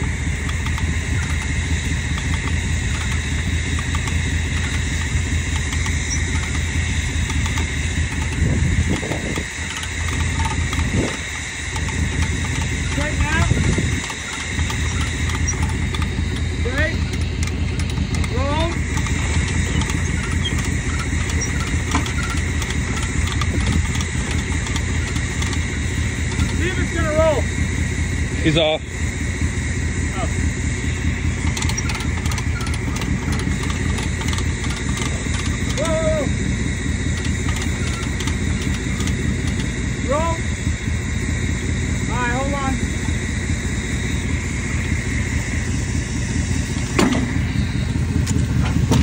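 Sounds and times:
truck engine running: 0:00.0 - 0:49.0.

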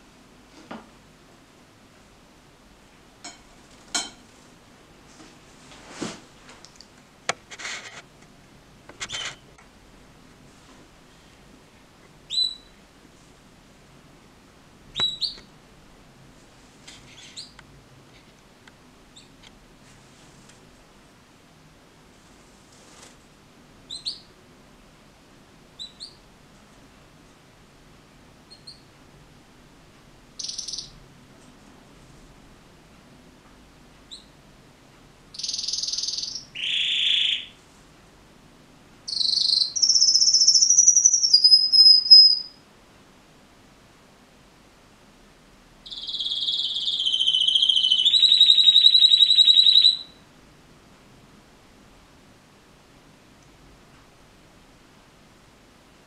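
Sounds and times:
canary chirps: 0:09.0 - 0:09.5, 0:12.3 - 0:12.8, 0:14.9 - 0:15.5, 0:17.0 - 0:17.6, 0:19.1 - 0:19.4, 0:23.8 - 0:24.4, 0:25.8 - 0:26.3, 0:28.5 - 0:28.9, 0:30.4 - 0:31.0, 0:34.1 - 0:34.4, 0:35.3 - 0:37.6, 0:39.1 - 0:42.6, 0:45.8 - 0:50.2
canary buzzy trill: 0:12.3 - 0:12.8, 0:30.4 - 0:31.0, 0:35.3 - 0:37.6, 0:39.1 - 0:42.6, 0:45.8 - 0:50.2.

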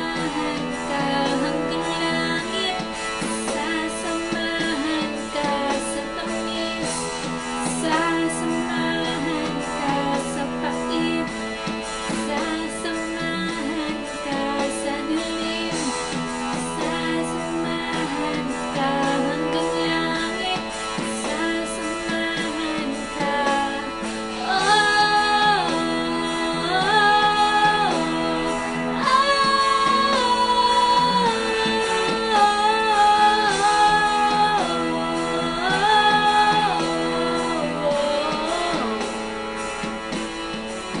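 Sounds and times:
instrumental accompaniment: 0:00.0 - 0:41.0
woman singing long notes: 0:16.6 - 0:39.3.

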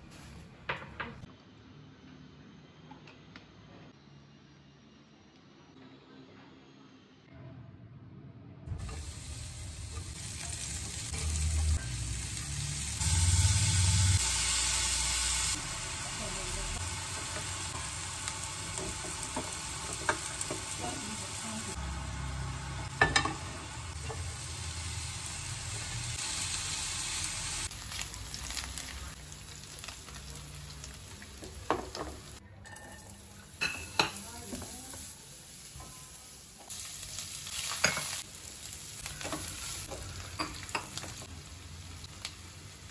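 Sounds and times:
onions and garlic sizzling in oil: 0:08.7 - 0:42.9.

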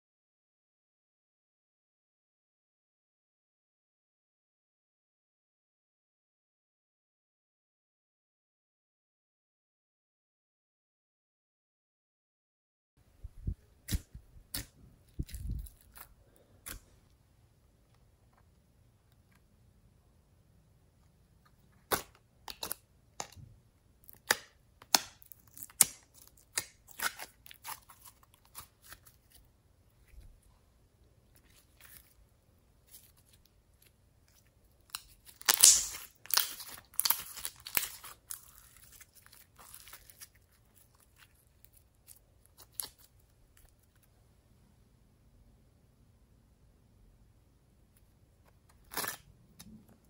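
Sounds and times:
slime crackling and popping: 0:24.0 - 0:29.4, 0:34.8 - 0:43.8.

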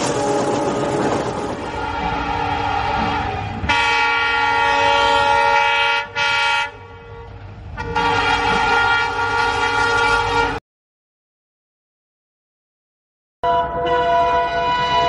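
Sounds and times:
passing train rumble: 0:00.0 - 0:10.6, 0:13.4 - 0:15.0
locomotive horn blasts: 0:01.6 - 0:10.6, 0:13.4 - 0:15.0.

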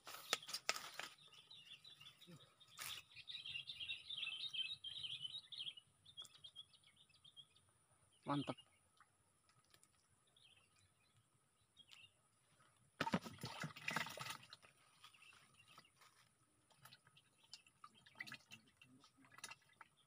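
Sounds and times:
faint bird chirps: 0:00.1 - 0:08.9.

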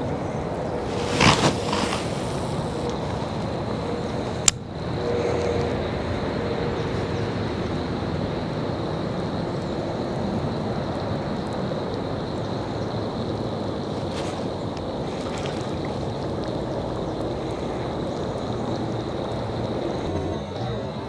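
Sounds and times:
steady rushing noise: 0:00.0 - 0:07.7.

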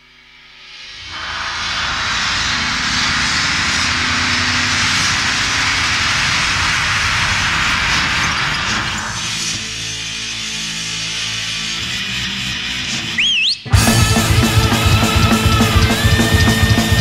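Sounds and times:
metal band music: 0:00.7 - 0:17.0
low rumble: 0:00.8 - 0:10.8
loud steady rushing noise: 0:00.8 - 0:12.0, 0:13.7 - 0:17.0.

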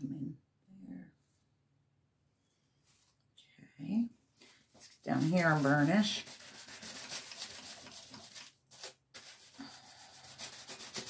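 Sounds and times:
paper rubbing scratchily: 0:04.9 - 0:11.0.

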